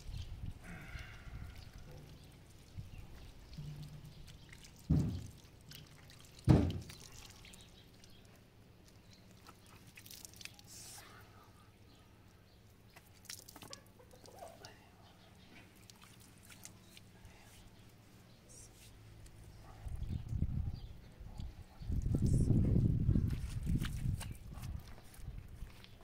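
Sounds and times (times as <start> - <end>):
water splashing and dripping: 0.0 - 11.1, 12.9 - 14.8, 15.6 - 17.1
loud dull thumps: 4.9 - 5.4, 6.5 - 6.9.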